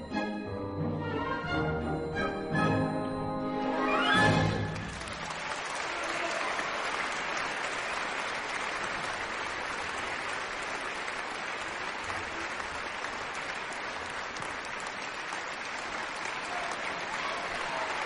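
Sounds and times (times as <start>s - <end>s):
audience applauding: 3.8s - 18.0s.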